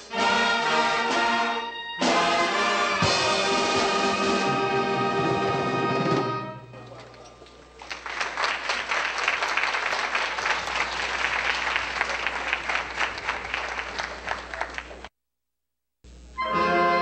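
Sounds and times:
audience applauding: 0:06.9 - 0:15.1.

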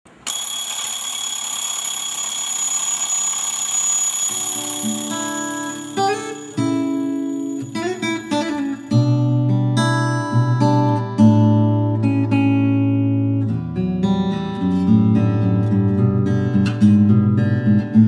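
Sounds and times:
alarm clock ringing: 0:00.2 - 0:09.4
acoustic guitar music: 0:04.2 - 0:18.0.

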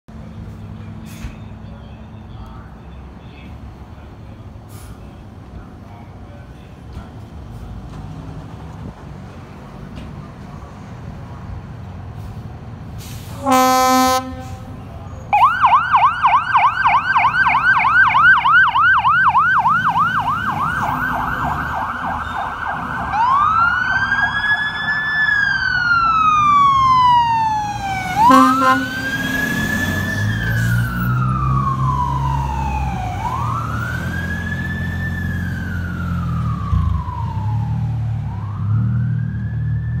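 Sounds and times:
diesel engine rumble: 0:00.1 - 0:40.0
horn blast: 0:13.2 - 0:14.9, 0:28.2 - 0:29.8
fire truck siren: 0:13.2 - 0:40.0.

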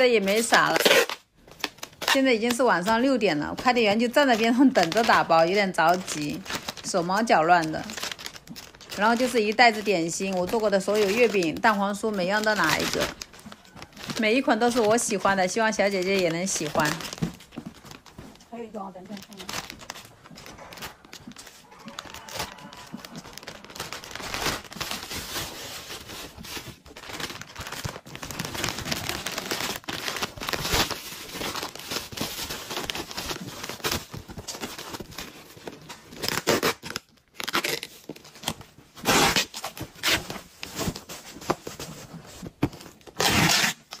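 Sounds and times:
plastic bags and bubble wrap crinkling: 0:00.0 - 0:44.0
packing tape ripping off roll: 0:00.3 - 0:02.9, 0:19.0 - 0:41.9, 0:42.5 - 0:44.0.

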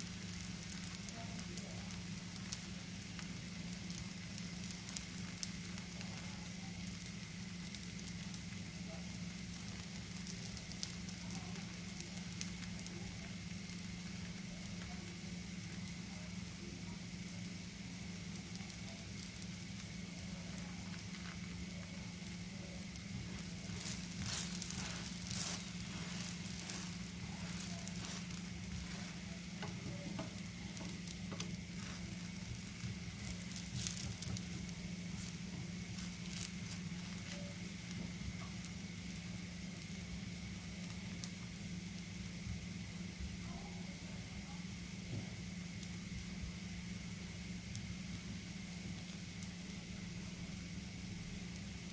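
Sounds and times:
crepe sizzling in a pan: 0:00.0 - 0:51.9.

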